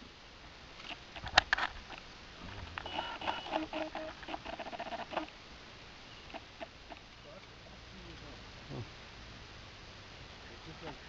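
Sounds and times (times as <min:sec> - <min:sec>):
wild dogs chirping: 0:02.3 - 0:05.3, 0:06.0 - 0:07.3.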